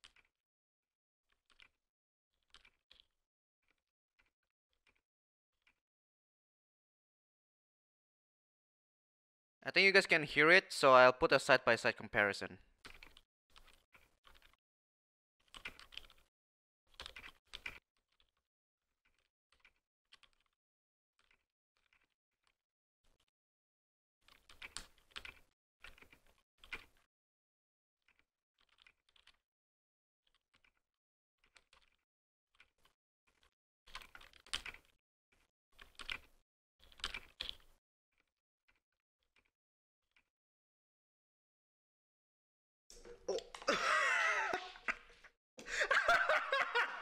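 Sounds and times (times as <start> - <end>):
soft mechanical keyboard typing: 15.4 - 16.3, 16.9 - 18.3, 24.3 - 27.1, 32.6 - 37.7.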